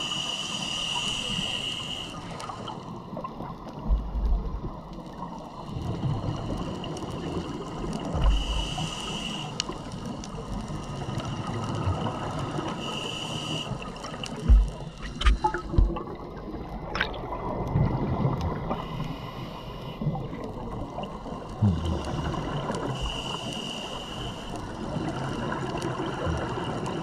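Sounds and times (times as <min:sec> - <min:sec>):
regulator inhalation hissing whistle: 0:00.0 - 0:02.3, 0:08.3 - 0:09.6, 0:12.8 - 0:13.9, 0:23.0 - 0:24.6
gurgling exhaled bubbles: 0:14.1 - 0:18.8, 0:20.0 - 0:23.2.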